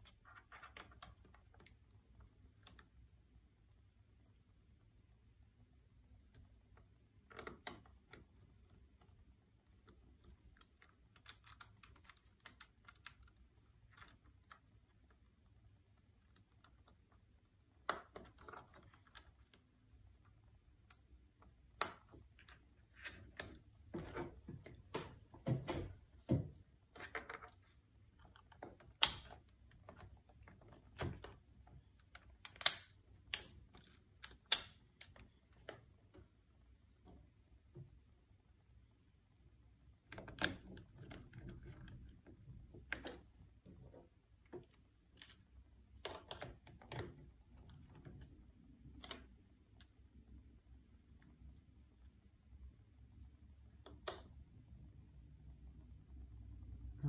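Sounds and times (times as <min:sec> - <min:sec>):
screwdriver and plastic parts clicking: 0:28.2 - 0:36.2.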